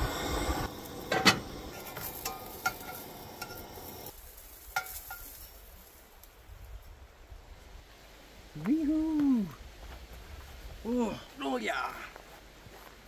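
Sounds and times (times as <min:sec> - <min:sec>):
sausages sizzling on a grill: 0:00.0 - 0:06.4.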